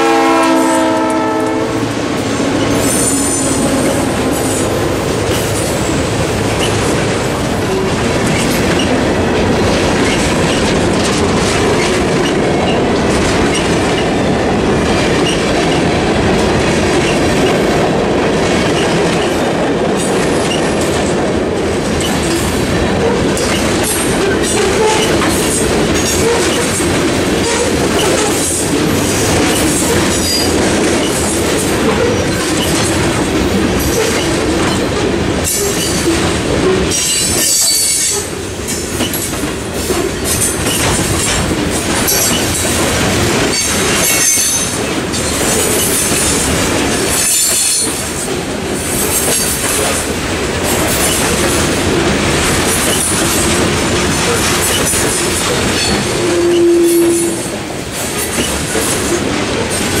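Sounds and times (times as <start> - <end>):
train wheels rumbling on rails: 0.0 - 60.0
wheels clacking over rail joints: 0.1 - 60.0
loud wheel squeal: 55.8 - 57.4.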